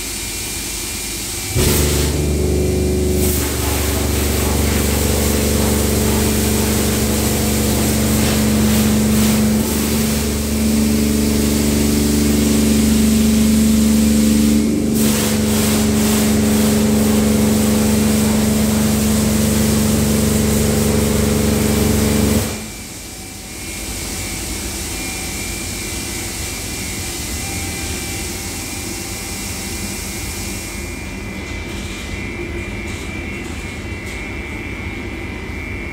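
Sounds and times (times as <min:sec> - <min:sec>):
pump humming: 0:01.4 - 0:23.2
water jets spraying: 0:01.6 - 0:22.6.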